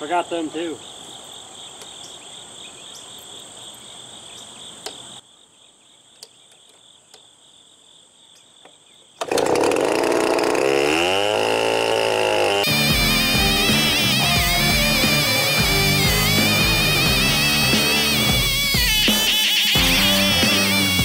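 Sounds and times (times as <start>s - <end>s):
insects chirping: 0.0s - 9.4s, 12.4s - 21.0s
chainsaw starting and revving: 9.2s - 21.0s
music: 12.6s - 21.0s.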